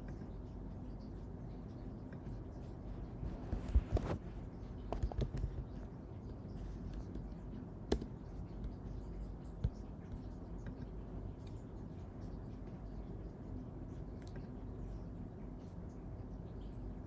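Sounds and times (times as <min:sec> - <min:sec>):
low room hiss: 0:00.0 - 0:17.0
keyboard keystrokes: 0:07.9 - 0:08.2.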